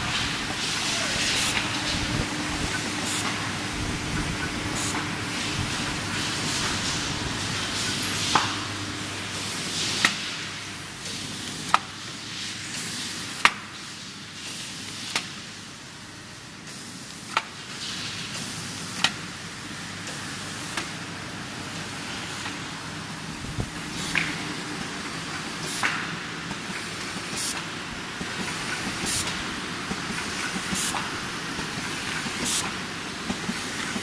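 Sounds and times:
steady machine hiss: 0.0 - 34.0.

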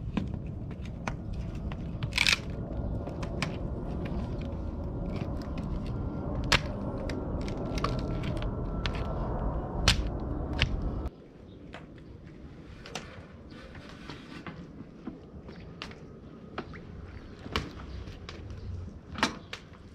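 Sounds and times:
low rumble: 0.0 - 11.2
wood cracking and splintering: 0.3 - 9.2.

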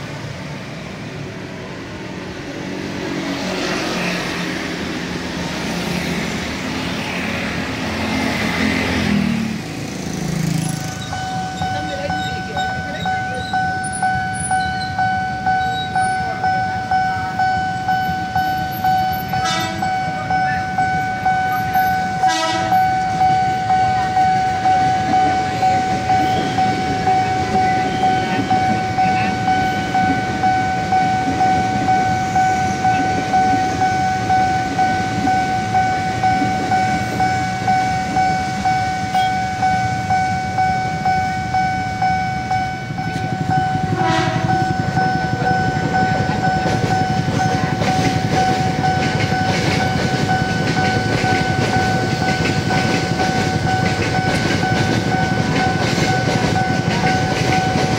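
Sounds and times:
crossing warning bell ringing: 0.0 - 57.9
train rail rumble: 0.0 - 57.9
train horn: 19.4 - 19.9, 22.2 - 22.9, 43.9 - 44.7.

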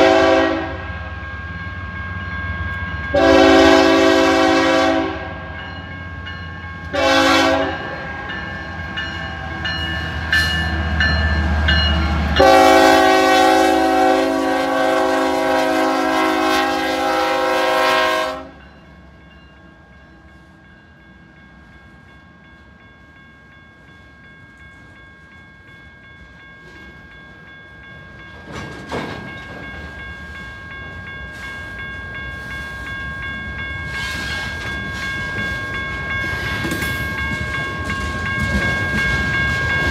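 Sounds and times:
locomotive air horn: 0.0 - 0.9, 3.1 - 5.4, 6.9 - 7.9, 12.4 - 18.6.

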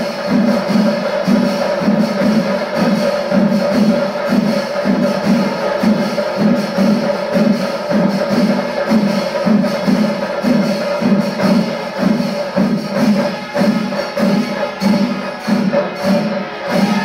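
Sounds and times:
drums driving beat: 0.0 - 17.0
hand cymbals clashing: 0.0 - 17.0.

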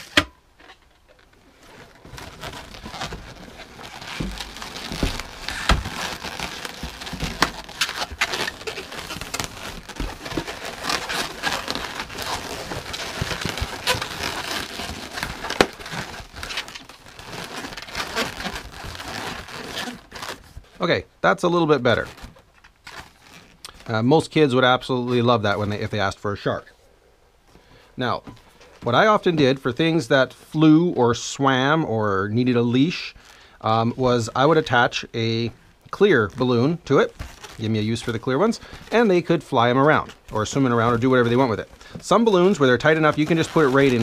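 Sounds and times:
balloons rubbing: 0.0 - 20.9, 21.8 - 23.8, 33.7 - 44.0.

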